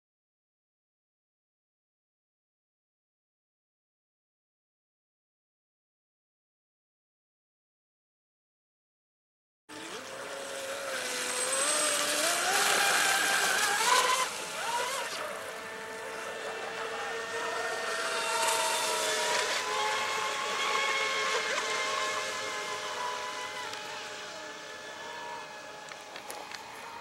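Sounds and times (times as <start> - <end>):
electric motor whining: 9.7 - 27.0.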